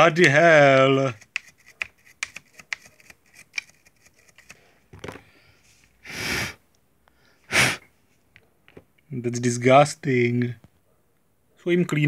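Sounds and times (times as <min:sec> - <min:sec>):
short rushes of breath: 0:05.4 - 0:06.6, 0:07.3 - 0:07.9.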